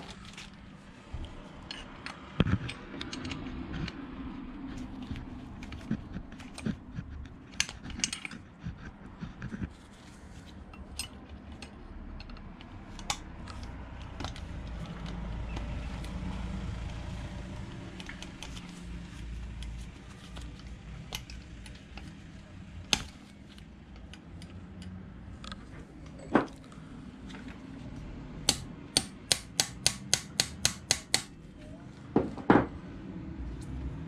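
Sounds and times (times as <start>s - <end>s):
metal tools clicking: 7.5s - 8.4s.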